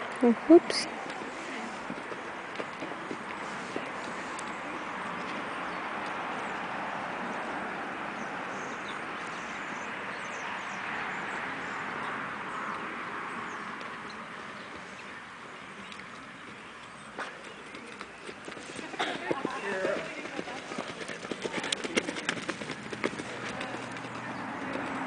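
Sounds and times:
horse hoofbeats on sand: 17.2 - 25.0.

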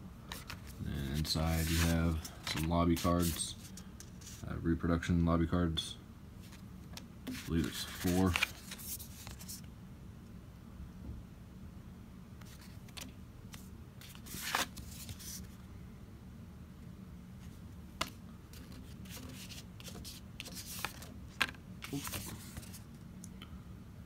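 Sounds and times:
steady low hum: 0.0 - 24.0
cards rustling: 0.2 - 4.4, 6.4 - 9.7, 12.4 - 15.6, 17.4 - 23.0.

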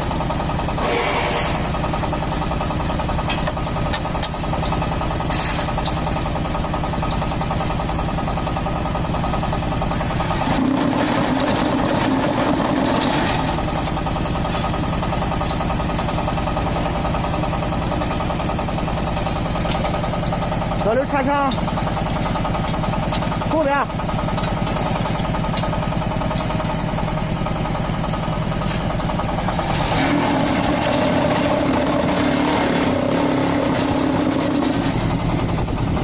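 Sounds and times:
loud steady hum: 0.0 - 8.6
diesel engine running: 0.0 - 36.0.

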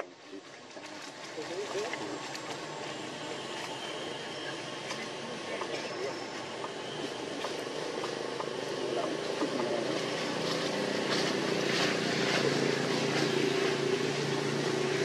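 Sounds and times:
engine drone: 0.0 - 15.0.

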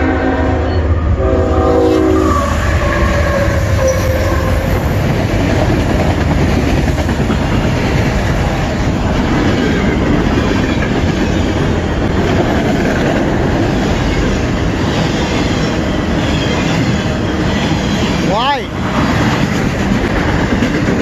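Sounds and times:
train horn blasting: 0.0 - 5.0
freight train rumbling past: 0.0 - 21.0.

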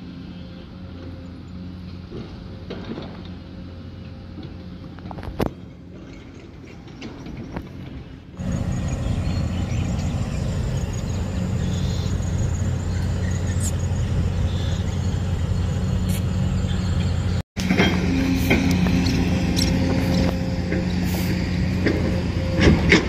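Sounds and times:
motor humming: 8.4 - 23.0.

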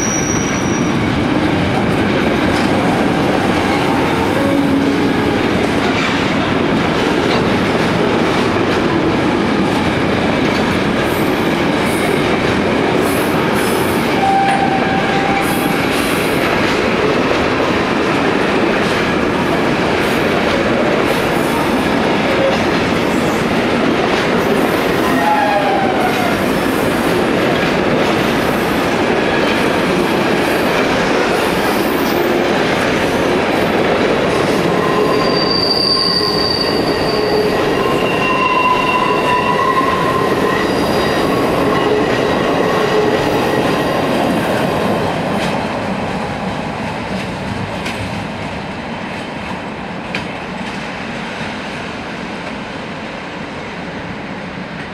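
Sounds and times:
high squeals from running gear: 0.0 - 1.0, 34.8 - 41.3
train wheels rumbling on rails: 0.0 - 54.9.

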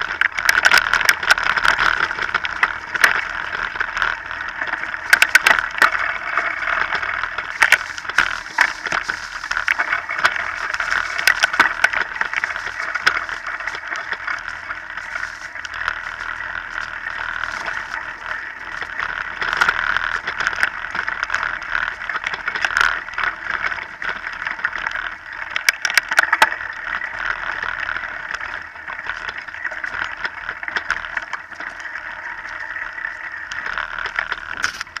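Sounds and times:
bike rolling on dirt: 0.0 - 35.0.

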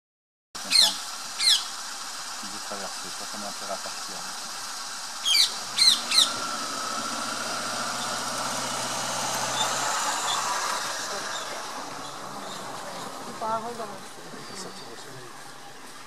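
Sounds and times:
shrill bird calls: 0.6 - 1.8, 5.2 - 6.4, 9.5 - 12.8.

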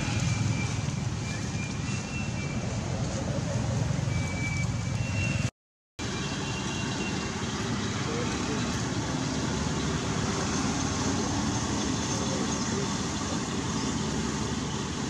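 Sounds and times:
outdoor background noise: 0.0 - 15.0.

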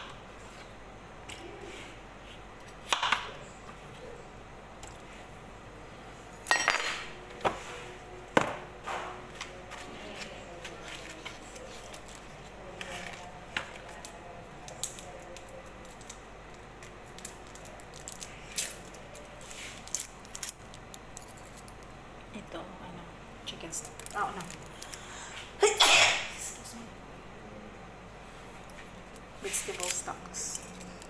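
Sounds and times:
foil crinkling: 9.8 - 21.9.

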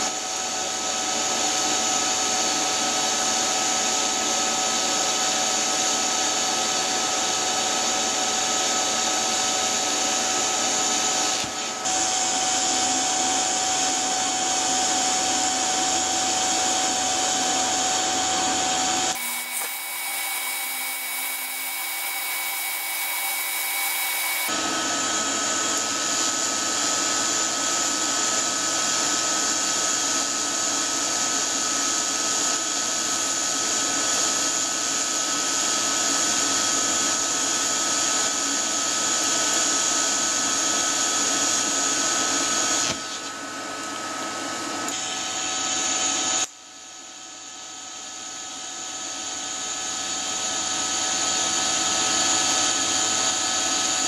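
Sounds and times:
welding arc hissing: 19.2 - 24.5.

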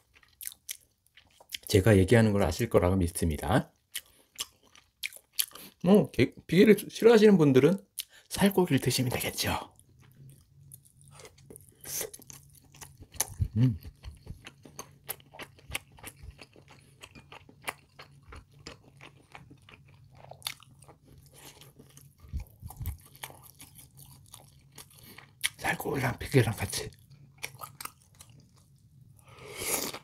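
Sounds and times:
wet chewing mouth sounds: 3.8 - 5.8, 9.8 - 25.6.

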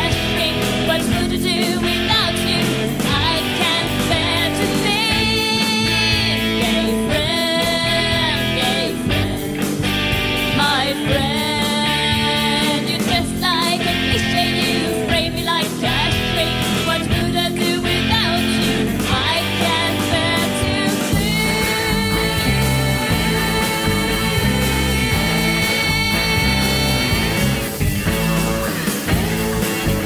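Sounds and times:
rock guitar: 0.0 - 30.0
steady drum beat: 0.0 - 30.0
person singing long notes: 19.7 - 27.5.

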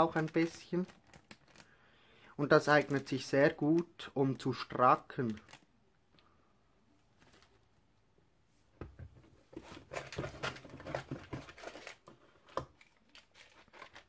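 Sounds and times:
rustling and clattering in box: 9.0 - 14.0.

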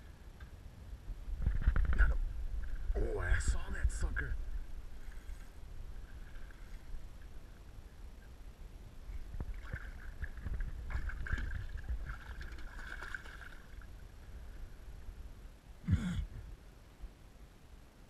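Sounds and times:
wind rumble on microphone: 0.8 - 15.6
fish splashing and thrashing: 9.4 - 13.9.

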